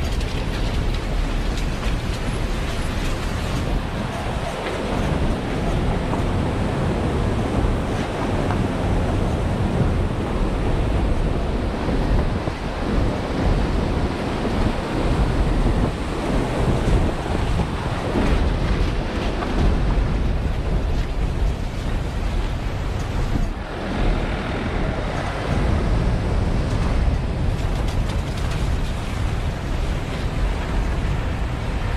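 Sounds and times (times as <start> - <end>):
fast river rushing: 0.0 - 31.9
wind buffeting microphone: 0.0 - 31.9.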